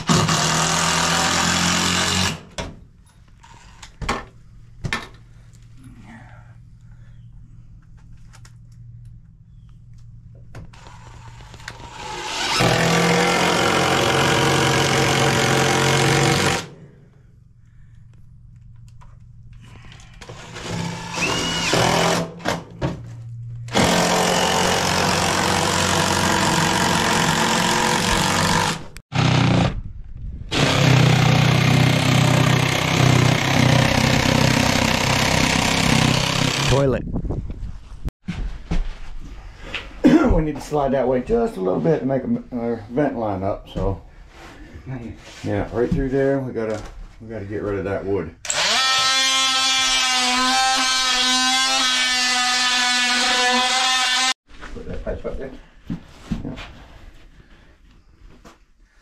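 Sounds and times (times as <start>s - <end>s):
power saw cutting wood: 0.0s - 2.5s, 10.8s - 16.8s, 23.7s - 29.7s, 30.5s - 36.8s, 48.4s - 54.4s.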